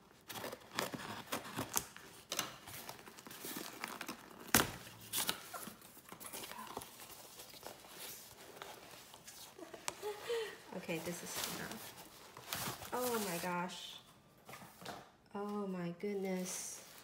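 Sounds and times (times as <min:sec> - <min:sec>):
cardboard rustling and crinkling: 0:00.0 - 0:15.1
tape tearing: 0:00.1 - 0:10.1.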